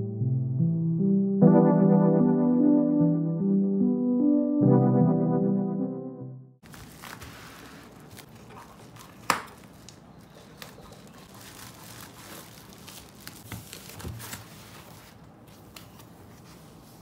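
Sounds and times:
bubble wrap crinkling: 0:06.6 - 0:16.1
scissors snipping plastic: 0:08.0 - 0:14.5.

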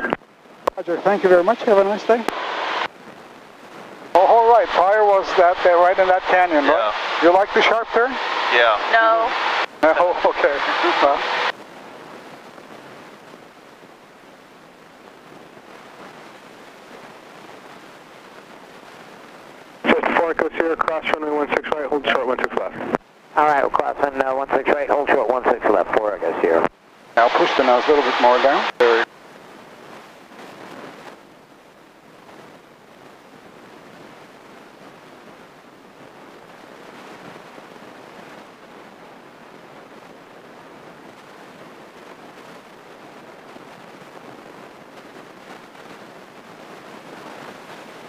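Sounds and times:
light airplane cockpit rushing noise: 0:04.2 - 0:11.5.

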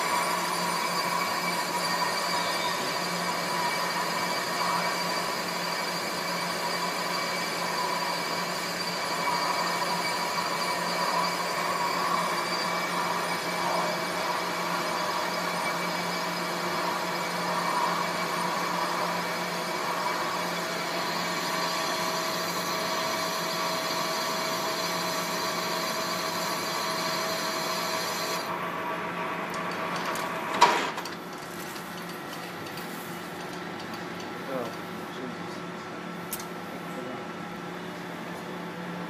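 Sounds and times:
metal lathe whirring: 0:00.0 - 0:31.0.

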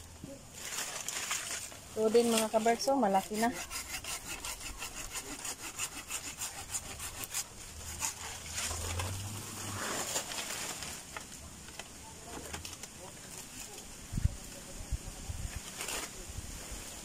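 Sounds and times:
scraping and handling noise: 0:00.0 - 0:03.5, 0:07.2 - 0:14.7, 0:15.4 - 0:17.0
hand saw cutting stem: 0:02.2 - 0:09.2.

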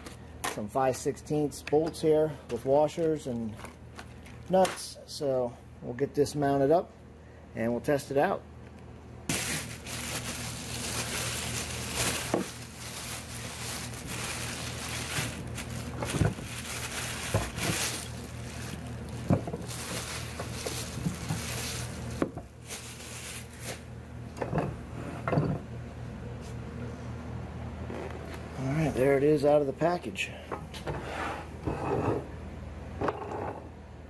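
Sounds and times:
plastic bag crinkling: 0:09.3 - 0:23.8.

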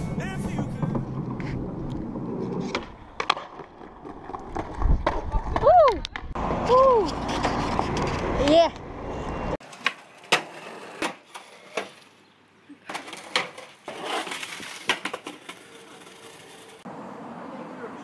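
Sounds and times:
skateboard clattering on asphalt: 0:00.2 - 0:06.2, 0:12.9 - 0:16.8.

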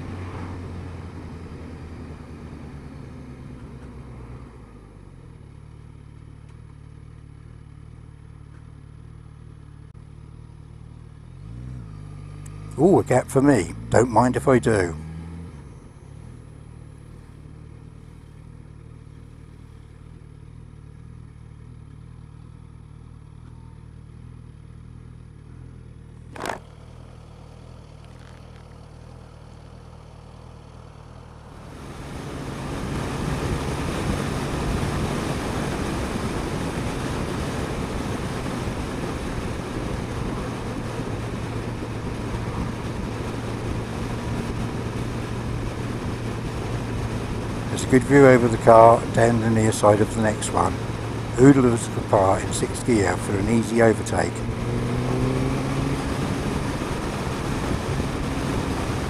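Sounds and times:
motorcycle engine running: 0:04.8 - 0:59.0
rushing wind noise: 0:31.6 - 0:59.0.

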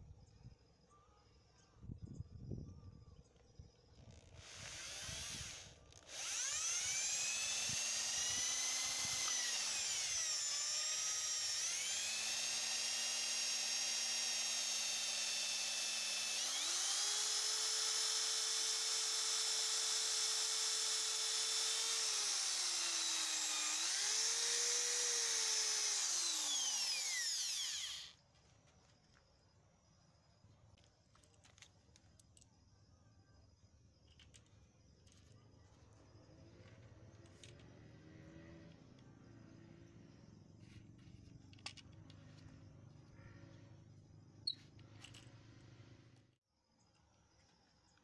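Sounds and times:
electric drill boring into wood: 0:04.0 - 0:28.2.

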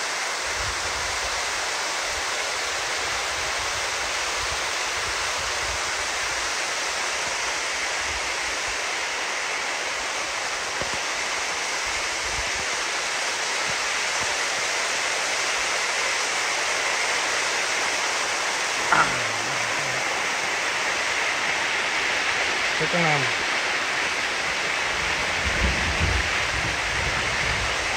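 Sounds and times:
rainwater rushing: 0:05.8 - 0:27.9.

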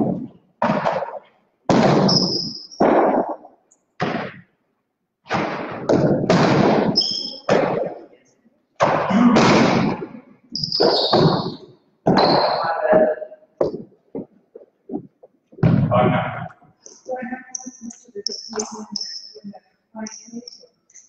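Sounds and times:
ball hitting court walls: 0:00.0 - 0:04.5, 0:05.2 - 0:08.0, 0:08.8 - 0:14.3, 0:14.9 - 0:16.5
short high squeaks: 0:07.0 - 0:07.5, 0:10.5 - 0:11.6, 0:17.5 - 0:21.0.

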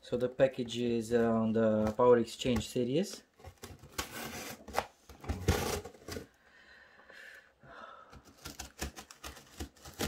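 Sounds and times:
tape and cardboard clicks: 0:08.1 - 0:10.0
knife scraping packing tape: 0:08.3 - 0:10.0.

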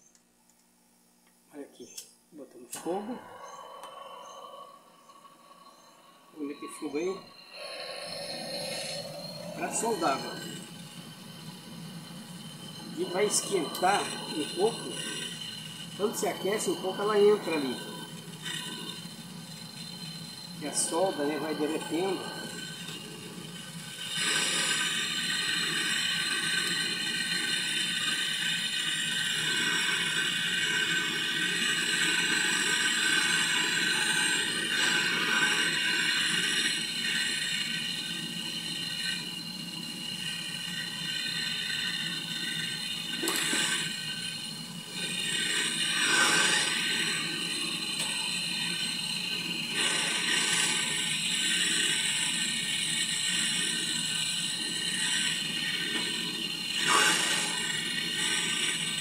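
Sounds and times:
gas torch hissing: 0:01.5 - 0:59.0.

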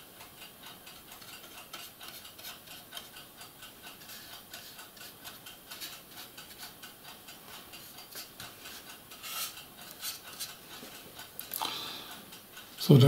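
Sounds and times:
paintbrush scratchy strokes: 0:07.8 - 0:10.5.

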